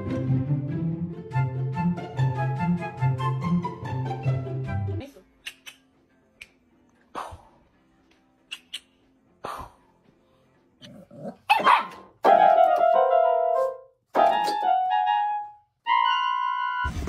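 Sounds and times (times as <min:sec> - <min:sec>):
dog barking: 0:11.4 - 0:12.2.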